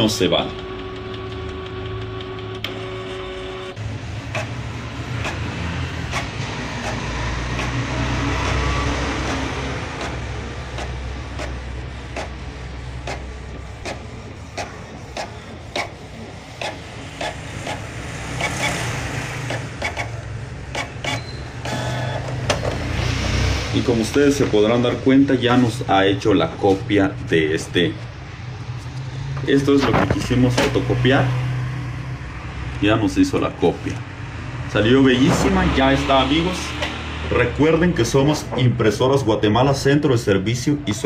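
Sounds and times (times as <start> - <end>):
printer mechanism whirring: 0.0 - 31.4, 35.1 - 38.8.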